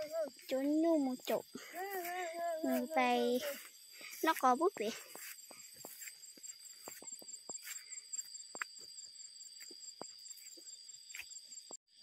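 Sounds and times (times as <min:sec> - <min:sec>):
footsteps on grass: 0:00.0 - 0:08.8
grass rustling: 0:00.0 - 0:08.8
insect chorus: 0:00.0 - 0:12.0
pulsing insect trill: 0:00.0 - 0:12.0.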